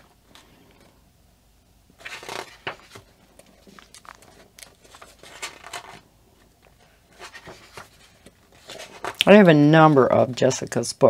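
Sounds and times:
paper pages rustling: 2.0 - 10.4.

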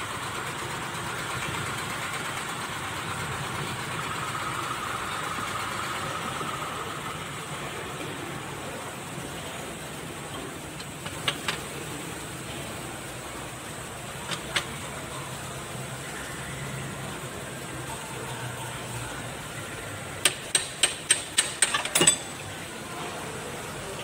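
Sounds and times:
steady engine-like hum: 0.0 - 24.0
tool tapping on metal: 10.8 - 11.7, 20.2 - 22.4.

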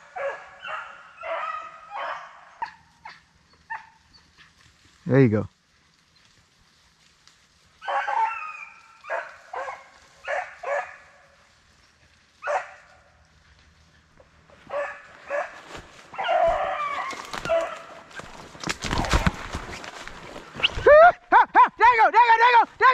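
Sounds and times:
dogs barking: 0.0 - 4.6, 7.8 - 11.4, 12.4 - 13.1, 14.0 - 18.3
dogs baying: 7.8 - 11.2, 13.8 - 18.4.

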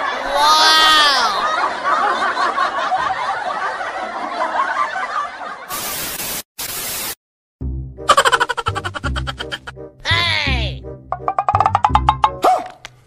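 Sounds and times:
people laughing: 0.0 - 5.7, 8.1 - 9.7
static-like hiss bursts: 5.7 - 7.2
music with low beat: 10.1 - 12.4.

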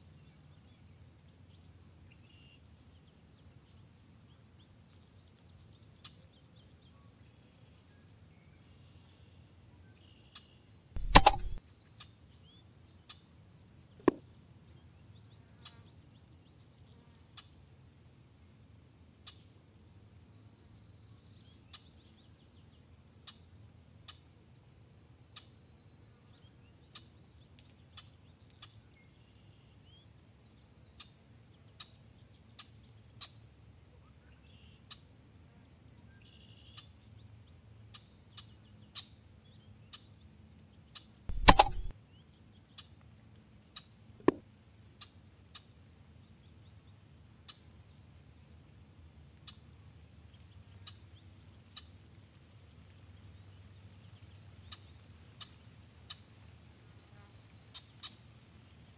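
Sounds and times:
air rifle shot crack: 11.0 - 11.6, 41.3 - 41.9
sharp snap: 11.0 - 11.6, 14.0 - 14.2, 41.3 - 41.9
faint clicks: 41.3 - 41.9.

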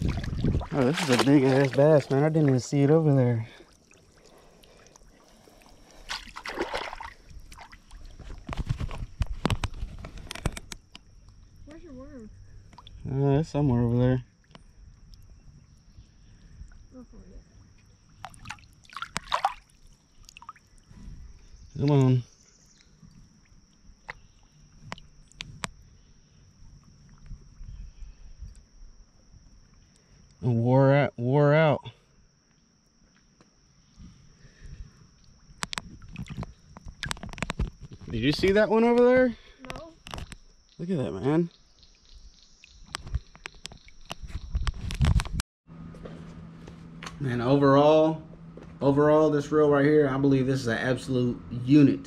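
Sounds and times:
water splashing around wading legs: 0.0 - 8.9, 18.1 - 20.9, 35.2 - 37.5.

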